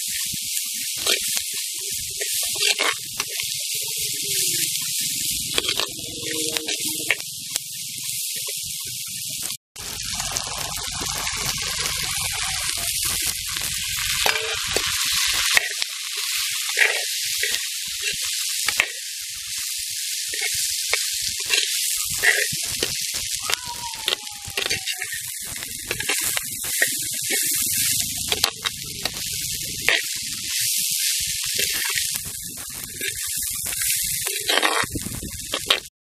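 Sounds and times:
vegetables sizzling in hot oil: 0.0s - 35.9s
steel ladle scraping pot: 5.2s - 7.2s.

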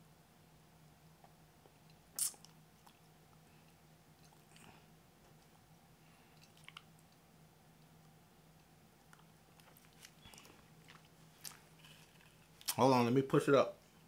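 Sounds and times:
mouth sounds: 2.1s - 2.5s.

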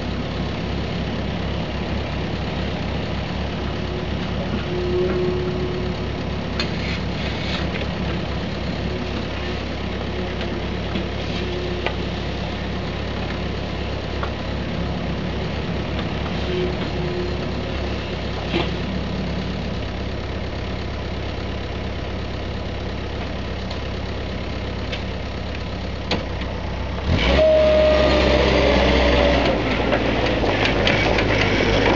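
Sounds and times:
diesel engines running: 0.0s - 31.9s
dumper revving and driving off: 26.0s - 31.9s.

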